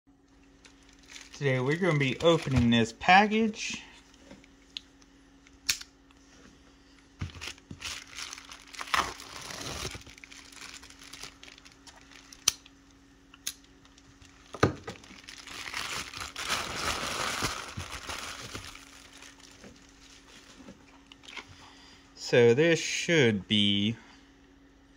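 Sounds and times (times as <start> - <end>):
plastic mailer crinkling: 0.4 - 3.6, 7.2 - 12.8, 13.7 - 20.7.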